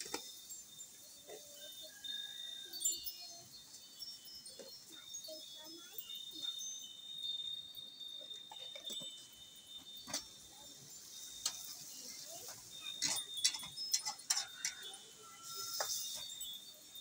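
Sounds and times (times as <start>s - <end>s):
faint sizzle: 10.0s - 13.5s.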